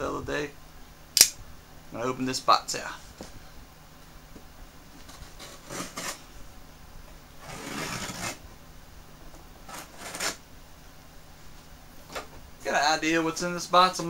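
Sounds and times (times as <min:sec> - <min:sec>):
knife cutting packing tape: 0:05.4 - 0:06.2, 0:07.4 - 0:08.4, 0:09.7 - 0:10.4.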